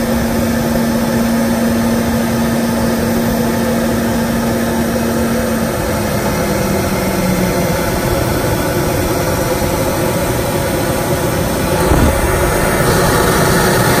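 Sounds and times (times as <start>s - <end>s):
low hum: 11.7s - 14.0s.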